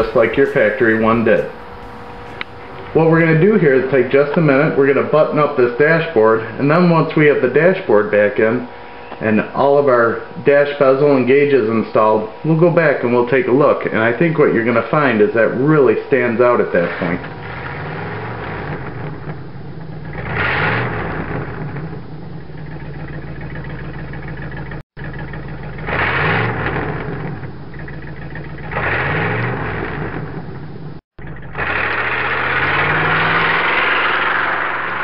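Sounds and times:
car engine idling and revving: 0.0s - 4.0s, 17.2s - 35.0s.

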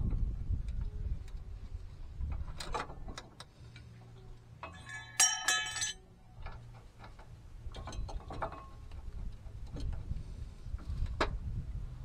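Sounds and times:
tools clinking against metal: 4.6s - 6.1s.

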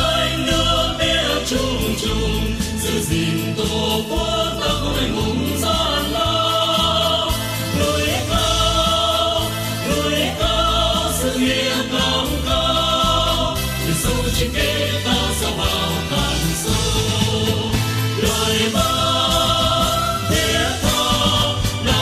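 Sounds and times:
amplified backing track: 0.0s - 22.0s
group singing a march: 0.0s - 22.0s.

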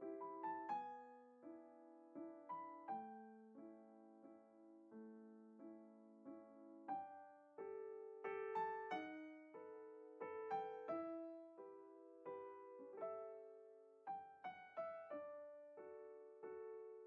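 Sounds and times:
quiet piano music: 0.0s - 17.0s.

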